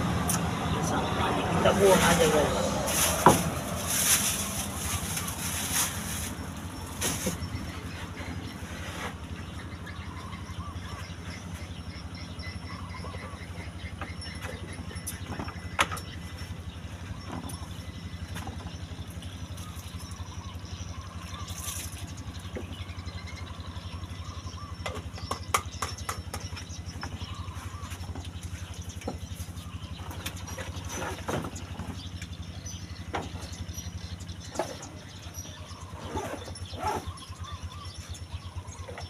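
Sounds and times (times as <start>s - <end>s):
small engine idling: 0.0s - 39.0s
rustling: 2.8s - 7.4s.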